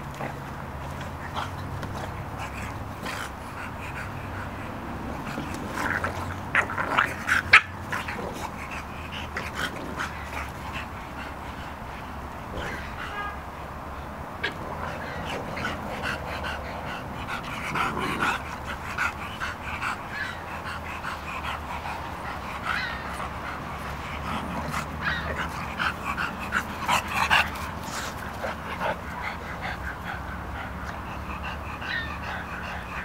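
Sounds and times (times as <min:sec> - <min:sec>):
puppies yipping and whimpering: 0:19.5 - 0:33.0.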